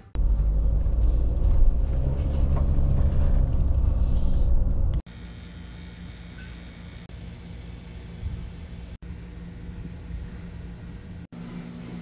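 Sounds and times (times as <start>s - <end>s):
engine and tyre rumble: 0.0s - 5.1s.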